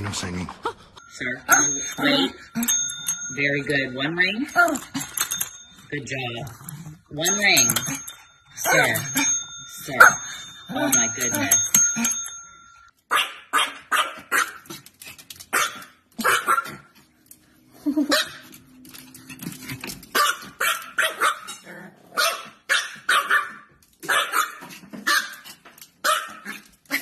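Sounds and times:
small dog barking: 13.1 - 14.6, 15.5 - 16.9, 20.2 - 25.4, 26.0 - 27.0.

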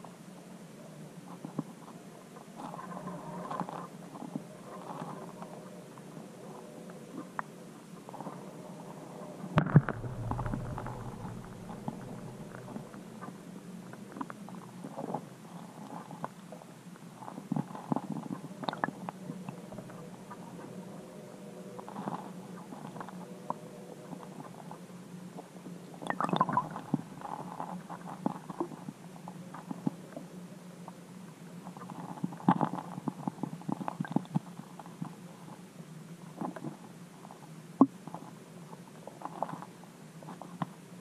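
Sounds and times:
steady low hum: 0.0 - 41.0
muffled underwater clicks and knocks: 9.6 - 16.6, 17.3 - 20.7, 31.7 - 35.2.

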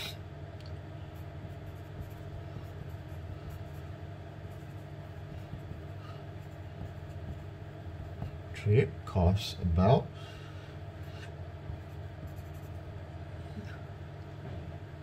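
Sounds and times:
low background hum: 0.0 - 15.0
pencil scratching on paper: 1.2 - 8.4, 11.7 - 12.9.

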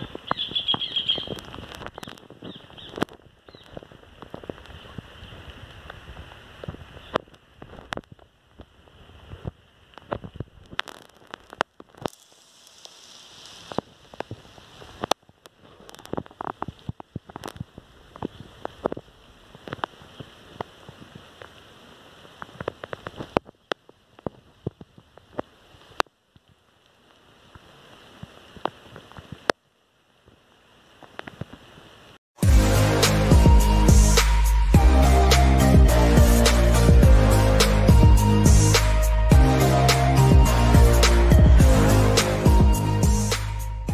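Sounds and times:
raindrops tapping microphone: 0.0 - 43.9
rushing hiss of storm: 12.1 - 15.1.

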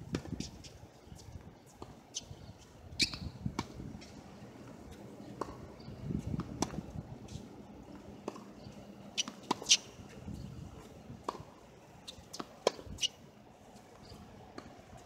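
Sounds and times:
tennis ball bouncing: 3.0 - 8.6, 9.2 - 9.9, 10.8 - 13.2
racquets striking tennis ball: 9.2 - 9.9.

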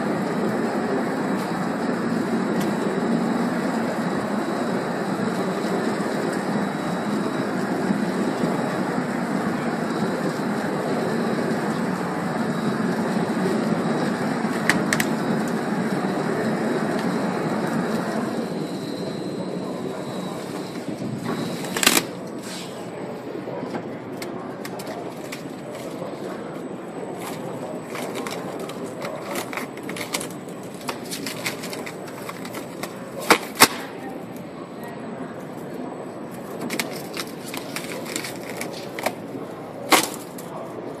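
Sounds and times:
stretch-wrapping machine running: 0.0 - 22.5, 24.6 - 33.6, 36.3 - 40.6.

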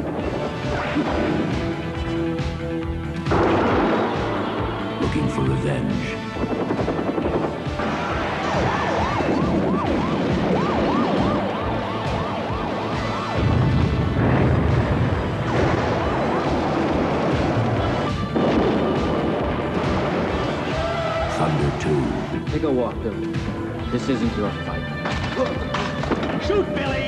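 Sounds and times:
action film music: 0.0 - 27.0
siren yelping: 8.1 - 13.6
loud deep rumble: 13.4 - 21.2.

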